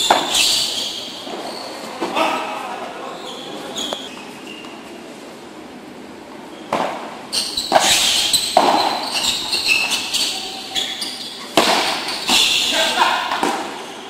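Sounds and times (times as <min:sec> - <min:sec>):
shoes squeaking: 0:00.0 - 0:05.1, 0:06.3 - 0:14.0
paddles hitting ball: 0:06.7 - 0:10.0, 0:11.5 - 0:13.8.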